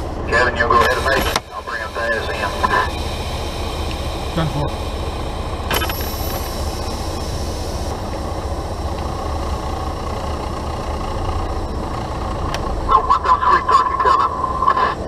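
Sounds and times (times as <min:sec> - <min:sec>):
truck engine and road drone: 0:00.0 - 0:15.0
sharp click: 0:05.7 - 0:06.5.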